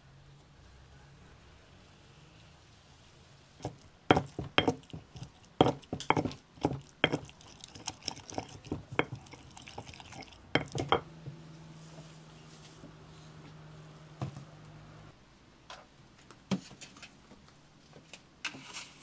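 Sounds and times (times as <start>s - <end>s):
stone pestle pounding in mortar: 3.6s - 11.0s.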